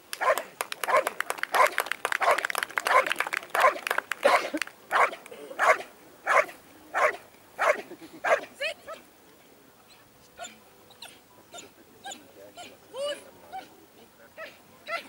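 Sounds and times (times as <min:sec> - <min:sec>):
dog barking: 0:00.2 - 0:08.4.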